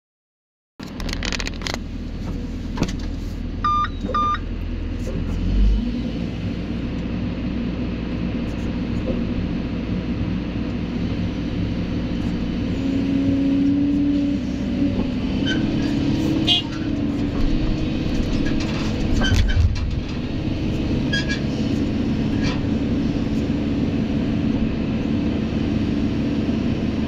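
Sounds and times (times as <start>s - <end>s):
diesel engine and hydraulics: 0.9s - 27.0s
short electronic beeps: 3.6s - 4.4s.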